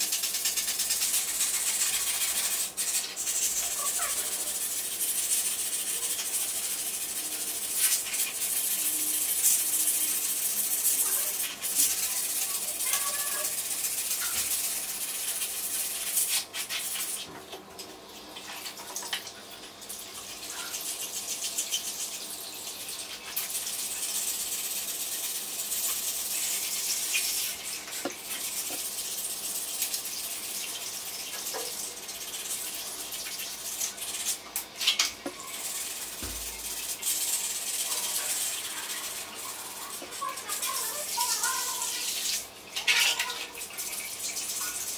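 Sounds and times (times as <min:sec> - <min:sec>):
scouring pad scrubbing: 0:00.0 - 0:17.3, 0:35.4 - 0:44.9.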